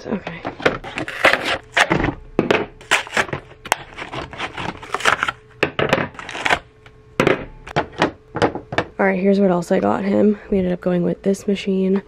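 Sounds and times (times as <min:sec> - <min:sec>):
stiff packaging crackling and snapping: 0:02.8 - 0:05.4, 0:06.1 - 0:06.9.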